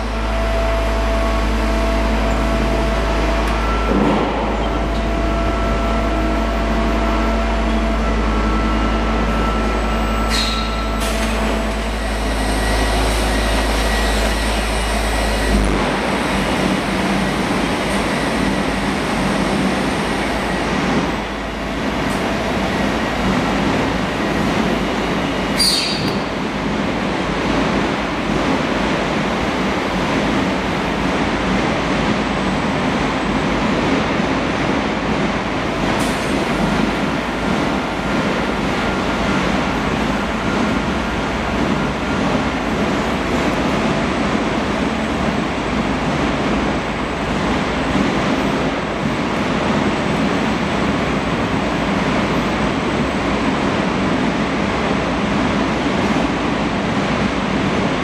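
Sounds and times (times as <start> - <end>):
machinery rumbling: 0.0 - 54.1.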